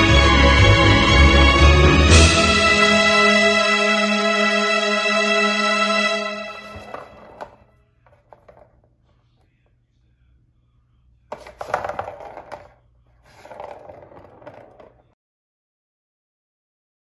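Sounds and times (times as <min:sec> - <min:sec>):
plastic ball rattling round track: 0:06.5 - 0:08.9, 0:11.3 - 0:15.1.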